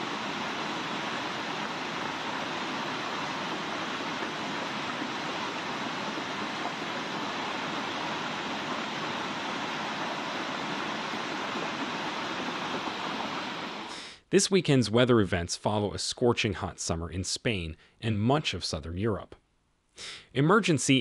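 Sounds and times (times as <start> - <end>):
floodwater roaring: 0.0 - 13.9.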